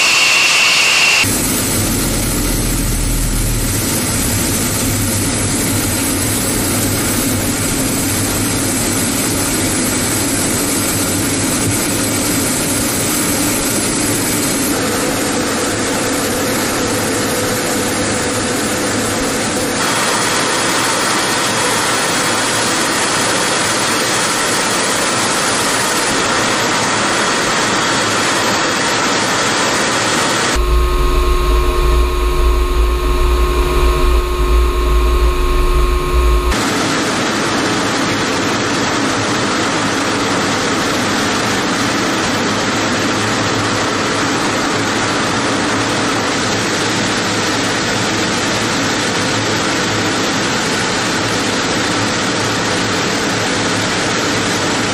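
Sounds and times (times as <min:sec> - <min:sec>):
deep hum with steady tones: 0:00.0 - 0:10.0, 0:30.5 - 0:36.6
jet engines roaring: 0:00.0 - 0:46.6.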